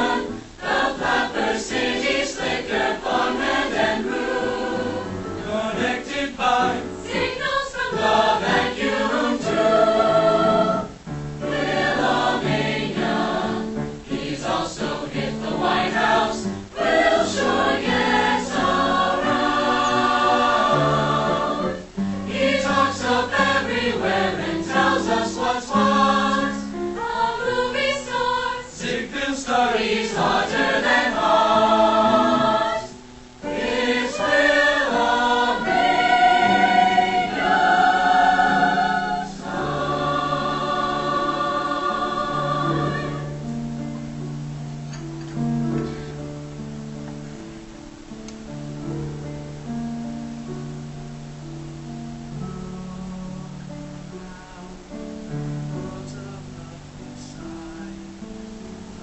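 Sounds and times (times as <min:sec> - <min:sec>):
mixed choir singing: 0:00.0 - 0:43.6.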